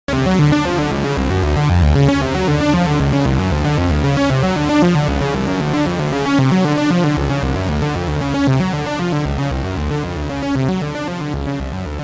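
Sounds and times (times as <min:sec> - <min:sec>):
synthesizer bass line: 0:00.1 - 0:12.0
synthesizer sawtooth notes: 0:00.1 - 0:12.0.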